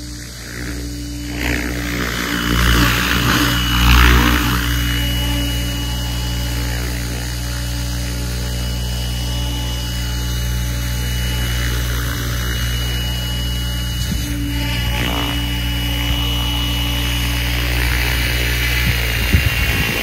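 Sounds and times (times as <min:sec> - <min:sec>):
rc helicopter hovering: 0:00.0 - 0:20.0.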